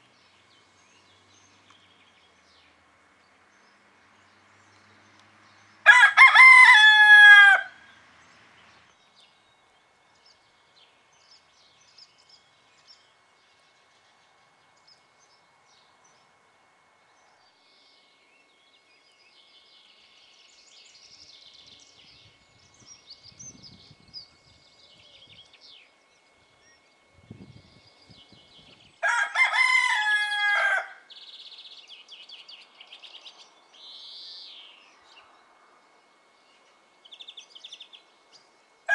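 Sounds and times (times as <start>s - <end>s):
cockerel crowing: 5.8s - 7.9s, 29.0s - 31.1s.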